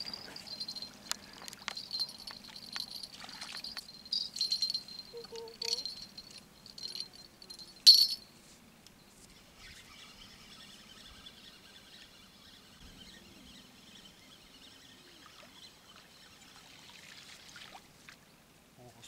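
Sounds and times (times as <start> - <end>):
fishing tackle jingling: 0.0 - 8.3
faint bird chirps: 9.3 - 17.0.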